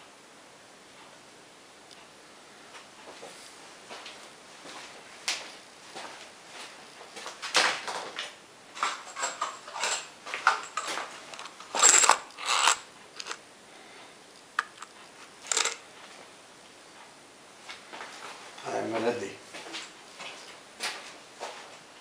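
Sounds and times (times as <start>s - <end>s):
screws clattering in plastic tub: 8.8s - 13.4s, 14.6s - 15.8s.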